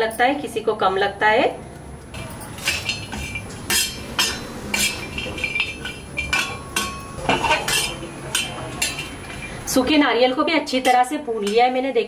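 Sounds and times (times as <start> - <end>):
spatula scraping on iron griddle: 2.5 - 9.8.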